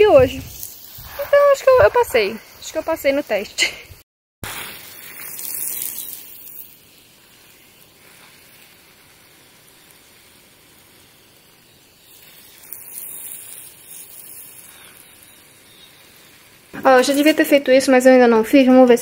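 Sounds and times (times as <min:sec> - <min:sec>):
soft even hissing: 0:00.0 - 0:19.0.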